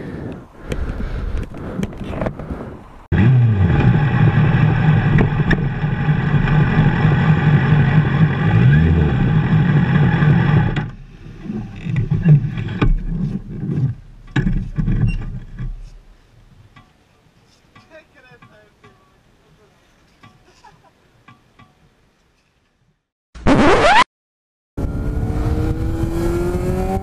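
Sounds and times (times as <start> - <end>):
motorcycle engine running: 3.2 - 10.8
handling knocks and rustles: 11.4 - 19.1.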